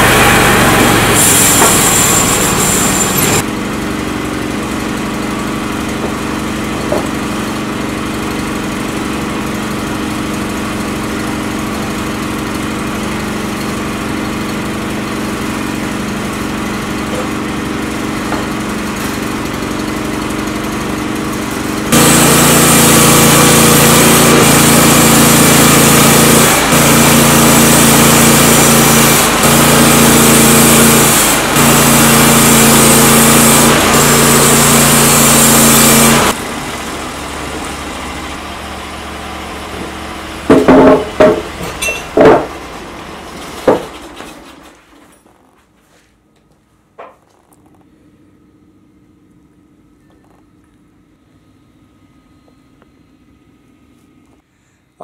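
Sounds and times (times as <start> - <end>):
band saw blade cutting wood: 0.0 - 3.4, 21.9 - 36.4
engine idling: 0.0 - 41.9.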